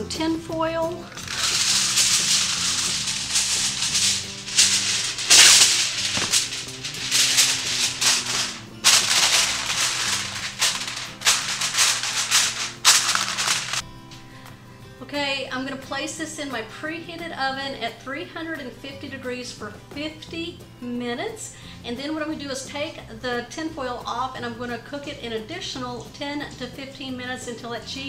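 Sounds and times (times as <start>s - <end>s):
faint background music: 0.0s - 28.0s
aluminium foil crinkling: 1.0s - 13.8s.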